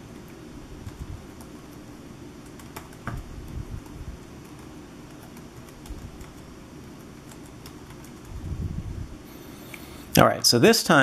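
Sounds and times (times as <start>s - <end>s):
keyboard typing: 0.2s - 8.4s.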